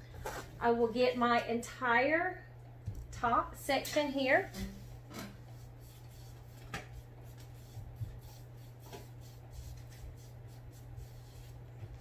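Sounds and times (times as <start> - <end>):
sponge brush dabbing on canvas: 4.5 - 12.0.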